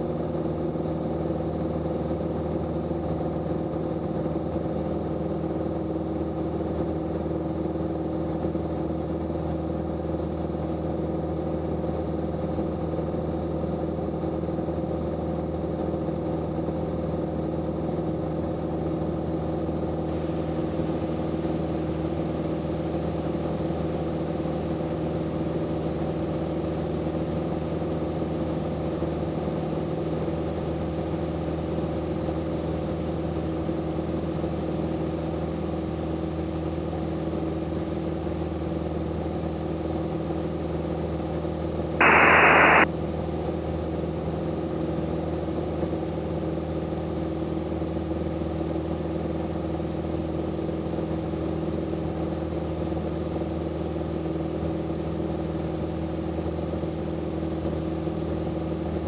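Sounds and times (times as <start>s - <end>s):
airplane engine droning: 42.0s - 42.8s
radio static burst: 42.0s - 42.8s.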